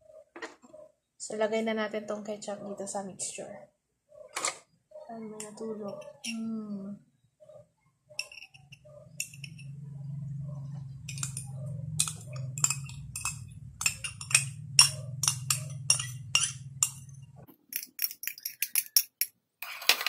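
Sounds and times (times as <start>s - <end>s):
spoon clinking against glass: 11.0s - 17.2s.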